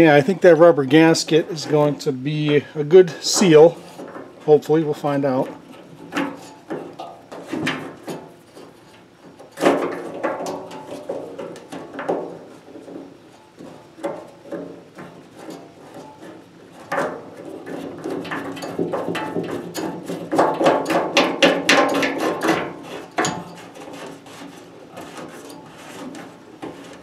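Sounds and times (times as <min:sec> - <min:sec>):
threads scraping and ticking: 0:00.0 - 0:27.0
fingers on aluminum box: 0:05.5 - 0:27.0.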